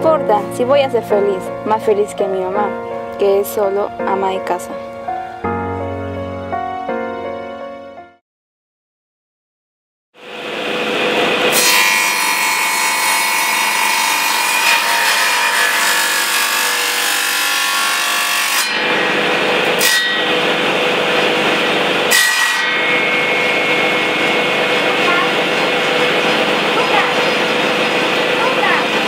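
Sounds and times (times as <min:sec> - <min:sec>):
saw cutting wooden board: 0:10.2 - 0:29.0
table saw whine: 0:10.2 - 0:29.0.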